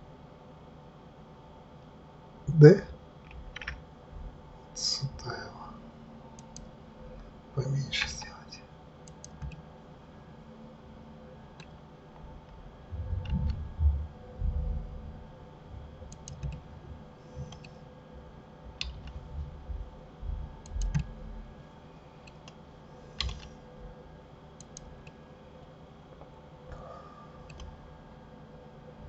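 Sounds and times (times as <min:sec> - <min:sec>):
faint steady hum: 0:00.0 - 0:29.0
mouse and keyboard clicks: 0:03.3 - 0:03.8, 0:23.2 - 0:23.5.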